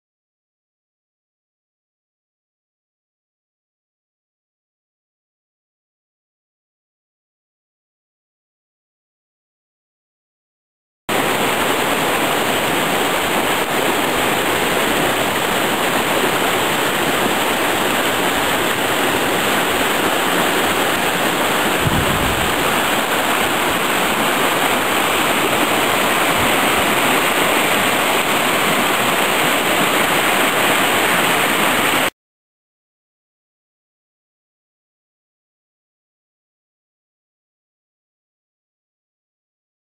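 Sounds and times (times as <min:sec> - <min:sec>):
water rushing over stones: 0:11.1 - 0:32.1.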